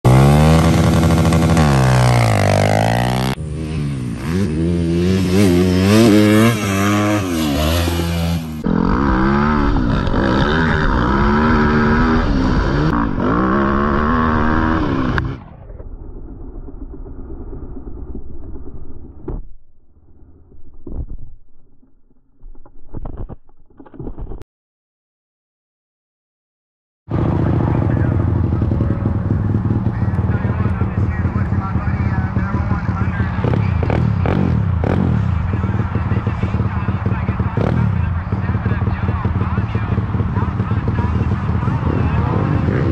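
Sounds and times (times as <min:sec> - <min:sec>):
dirt bike engines revving: 0:00.1 - 0:15.6, 0:27.1 - 0:42.9.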